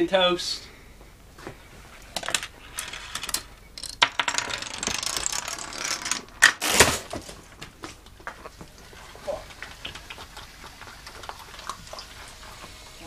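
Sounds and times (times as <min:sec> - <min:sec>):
dominoes clicking: 0:02.2 - 0:06.4.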